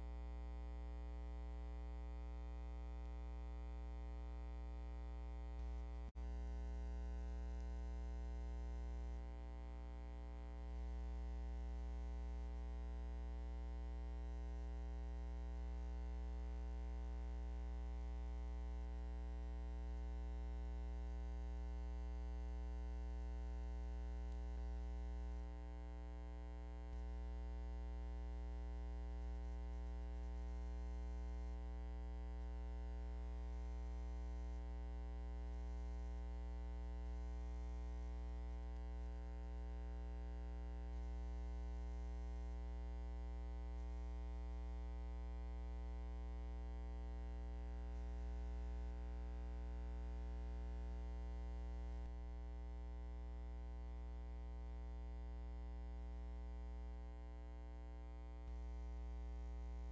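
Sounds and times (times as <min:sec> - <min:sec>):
electrical hum with buzz: 0:00.0 - 0:59.9.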